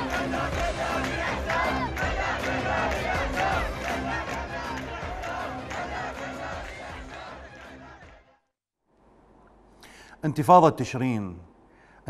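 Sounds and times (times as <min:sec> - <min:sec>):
crowd shouting and chanting: 0:00.0 - 0:08.4
music: 0:00.0 - 0:08.5.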